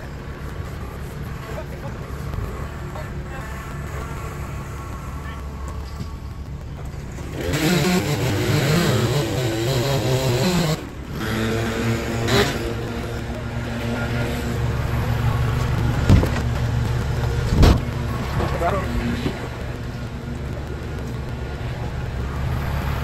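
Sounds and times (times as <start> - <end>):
tractor diesel engine running: 0.0 - 23.0
sharp knocks: 15.6 - 18.4.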